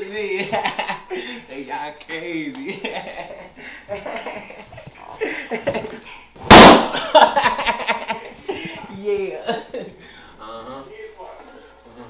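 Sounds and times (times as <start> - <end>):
balloon bursting: 6.5 - 7.0.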